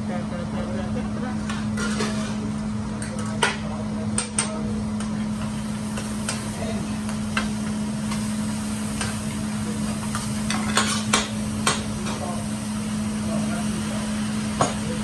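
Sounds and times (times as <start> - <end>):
hiss of frying: 0.0 - 15.0
metal spatula clacking on griddle: 10.1 - 12.2.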